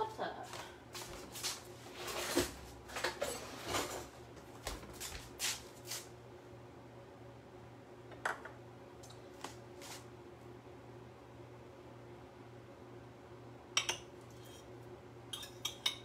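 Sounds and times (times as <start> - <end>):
faint steady hum: 0.0 - 16.0
kitchen items clattering on countertop: 2.0 - 4.2.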